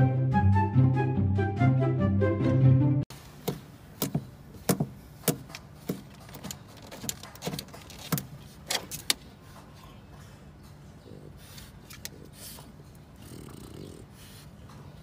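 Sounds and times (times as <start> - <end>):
dog claws clicking and scraping: 4.0 - 9.8, 10.6 - 13.8.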